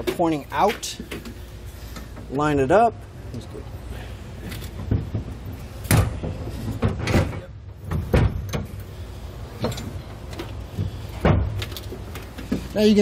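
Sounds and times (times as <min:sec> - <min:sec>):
steel hitch clunking and knocking: 0:04.5 - 0:08.9, 0:09.5 - 0:12.7.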